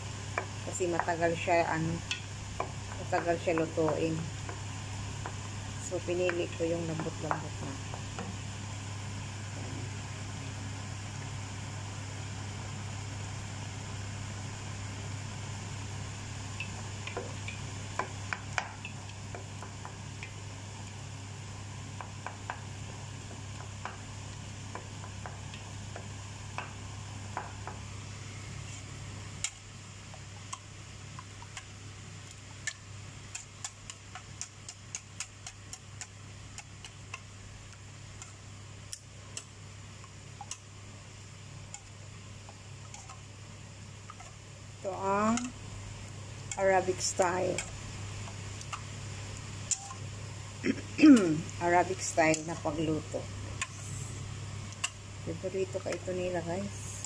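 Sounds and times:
sauce simmering: 2.0s - 5.8s, 7.4s - 56.2s
wooden spoon stirring in pan: 16.8s - 50.5s, 51.1s - 56.9s
whisk clicking against metal bowl: 32.7s - 37.2s.

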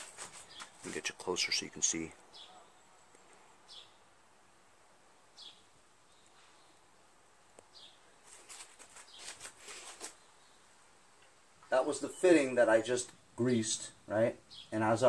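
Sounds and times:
faint high ticks and rustles: 0.0s - 1.1s, 7.4s - 10.2s.

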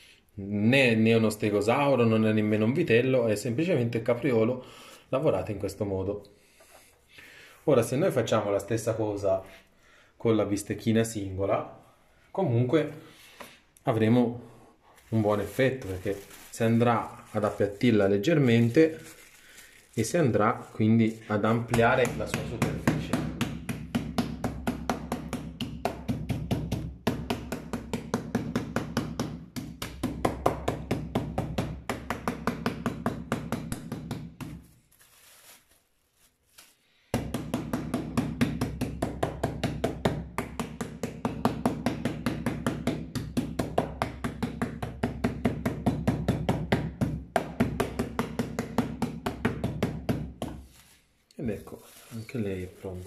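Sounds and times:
meat pounder beating meat: 21.7s - 34.6s, 37.2s - 50.4s.

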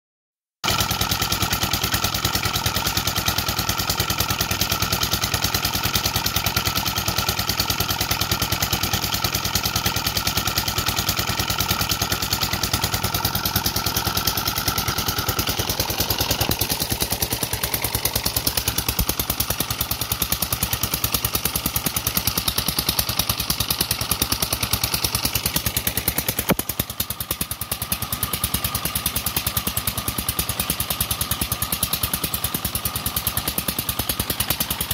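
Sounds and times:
small diesel engine running: 0.6s - 34.9s.

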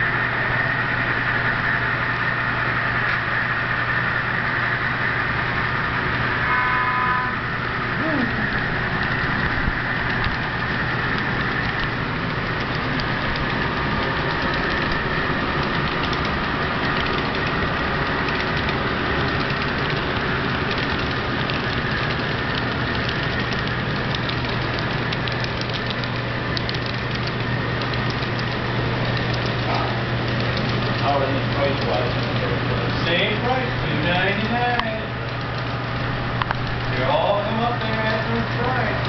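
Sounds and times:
model train diesel engine drone: 0.0s - 39.0s
wheels clicking over track: 8.0s - 39.0s.

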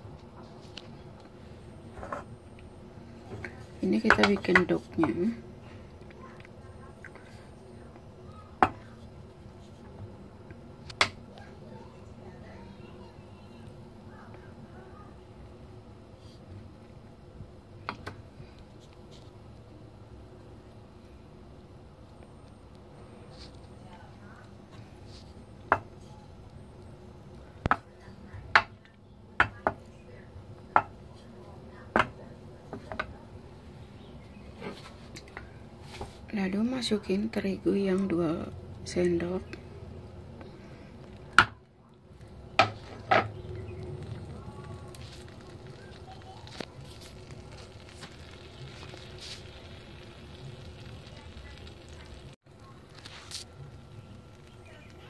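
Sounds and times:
faint steady hiss: 32.4s - 55.0s
margarine sizzling in a frying pan: 42.4s - 55.0s.

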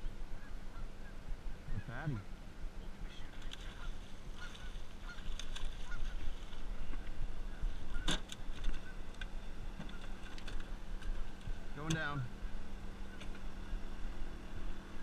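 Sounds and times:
geese honking: 0.0s - 15.0s
steady low hum: 0.0s - 15.0s.

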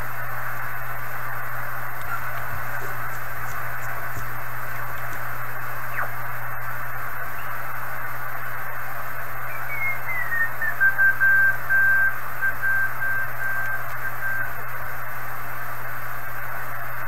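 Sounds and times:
radio band hiss: 0.0s - 17.0s
morse code tone: 10.0s - 14.5s.

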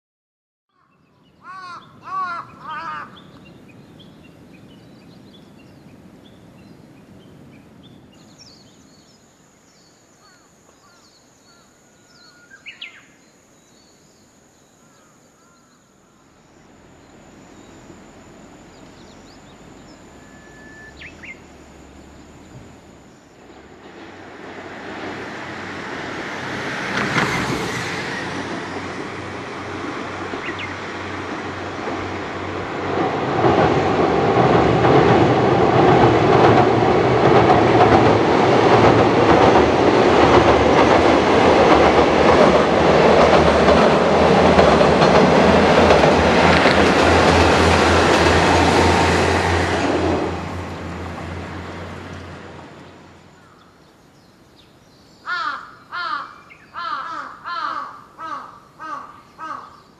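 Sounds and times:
bird calls: 0.7s - 6.9s, 9.8s - 13.2s, 14.7s - 22.8s, 30.4s - 30.8s, 53.4s - 59.9s
diesel railcar approaching: 15.4s - 54.8s.

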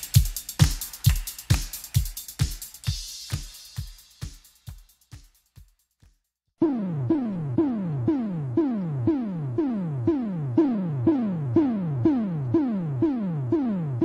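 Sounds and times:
synth drum pitch sweeping down: 6.6s - 14.0s.

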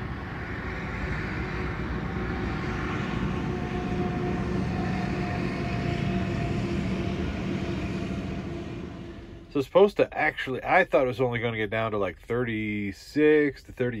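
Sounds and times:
train rumbling past: 0.0s - 9.8s.

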